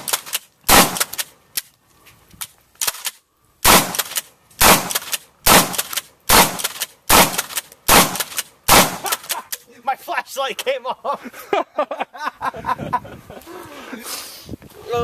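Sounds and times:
shotgun shots: 0.0s - 1.3s, 2.8s - 9.4s.

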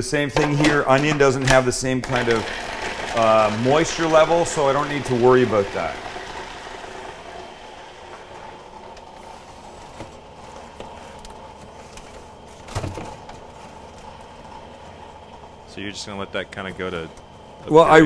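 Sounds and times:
steady low hum: 0.0s - 18.0s
items moved inside fridge: 8.1s - 15.3s
refrigerator door opening: 12.5s - 13.6s.

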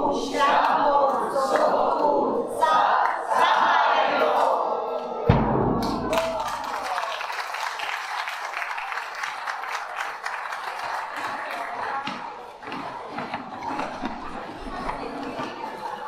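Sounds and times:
large drum boom: 5.3s - 6.8s.

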